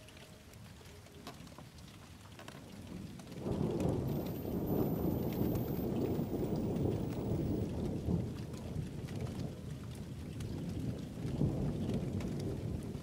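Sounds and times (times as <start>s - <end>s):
rain falling: 0.0s - 13.0s
thunder rumbling: 3.4s - 13.0s.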